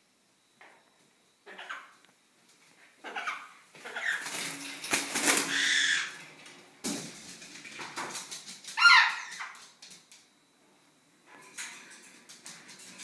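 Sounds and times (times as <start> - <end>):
parrot squawking: 1.5 - 1.9, 3.0 - 4.3, 5.5 - 6.2, 8.8 - 9.6
parrot flapping wings: 3.8 - 10.1.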